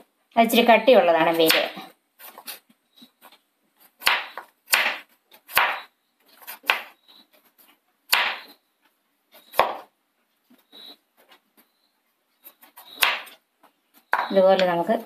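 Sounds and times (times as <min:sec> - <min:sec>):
knife chopping on wooden board: 0:04.0 - 0:05.8, 0:08.1 - 0:08.6, 0:09.5 - 0:09.9, 0:12.9 - 0:13.4, 0:14.1 - 0:14.7.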